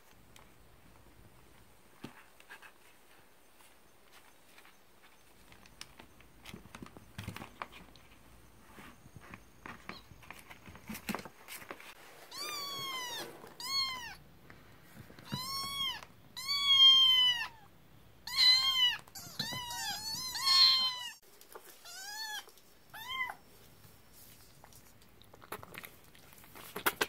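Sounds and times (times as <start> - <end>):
kittens scuffling on newspaper: 2.0 - 14.0
kitten meowing: 12.3 - 14.2, 15.3 - 21.2.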